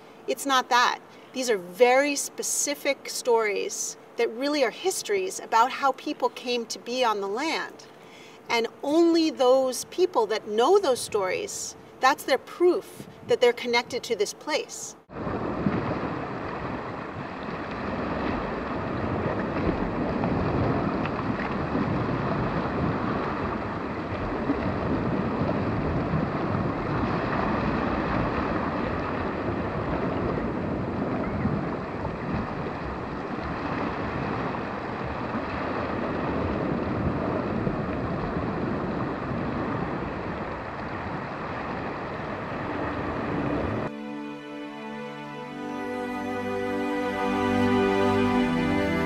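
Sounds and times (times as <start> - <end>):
wind: 0.0 - 49.0
ocean surf: 15.1 - 43.9.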